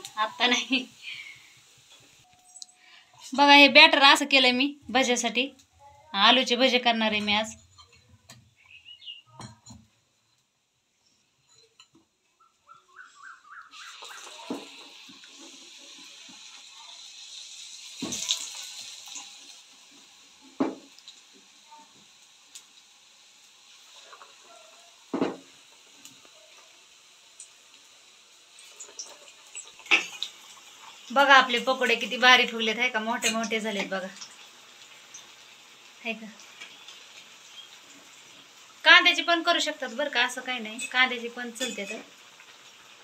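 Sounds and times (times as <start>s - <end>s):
hot oil sizzling: 0.0s - 43.0s
knock: 20.6s - 20.9s, 25.1s - 25.4s.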